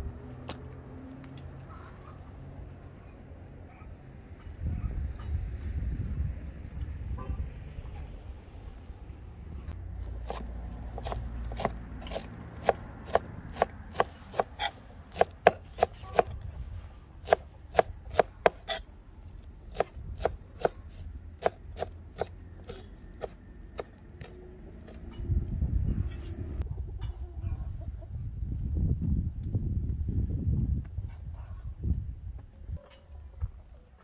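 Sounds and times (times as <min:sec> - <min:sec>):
knife chopping on cutting board: 0:17.2 - 0:18.7.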